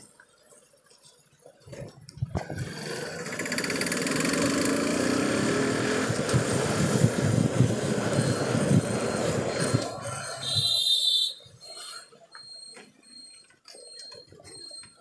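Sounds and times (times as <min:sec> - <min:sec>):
motorcycle engine running: 0:02.4 - 0:10.1.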